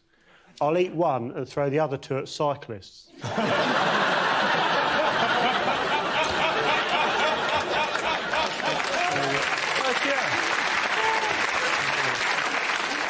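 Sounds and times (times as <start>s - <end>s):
studio audience laughing: 3.2s - 13.0s.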